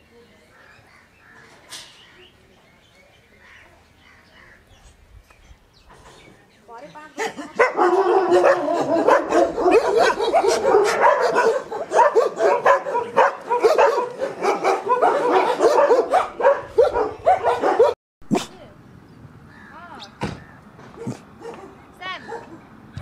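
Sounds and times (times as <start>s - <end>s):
dogs barking and yelping: 7.2s - 18.5s, 20.8s - 22.7s.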